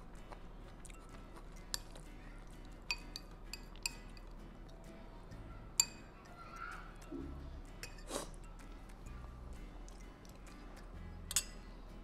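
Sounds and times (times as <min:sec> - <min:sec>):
metal spoon clinking against glass bowl: 0:00.9 - 0:02.0, 0:02.8 - 0:04.4, 0:05.8 - 0:06.2, 0:07.8 - 0:08.6, 0:11.2 - 0:11.6.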